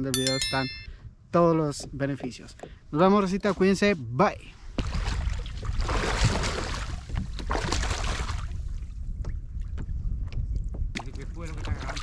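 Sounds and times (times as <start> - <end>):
wind rumbling on microphone: 4.6 - 12.0.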